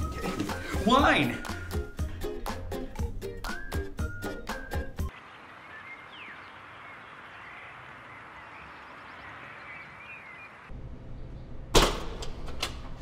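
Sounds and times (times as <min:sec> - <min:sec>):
small birds chirping: 0:05.0 - 0:11.6.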